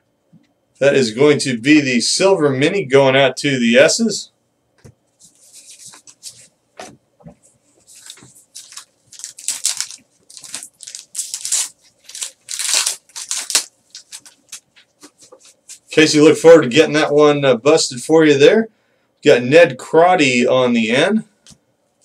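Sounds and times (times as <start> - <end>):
foil wrapper crinkling and tearing: 7.9 - 15.8.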